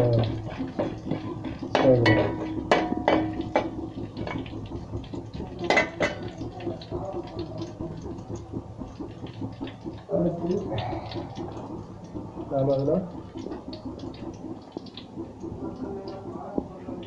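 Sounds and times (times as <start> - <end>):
spices sizzling in hot oil: 0.0 - 8.0.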